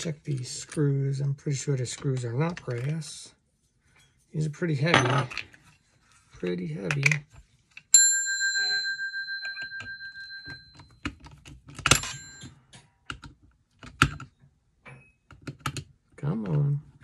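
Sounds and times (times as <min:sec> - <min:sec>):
telephone bell gong ringing: 0:08.0 - 0:10.9.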